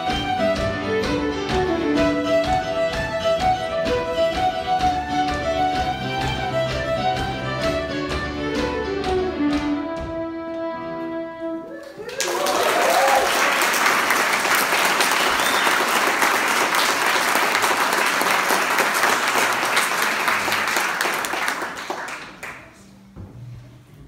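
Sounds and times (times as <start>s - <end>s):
audience applauding: 11.7s - 22.9s.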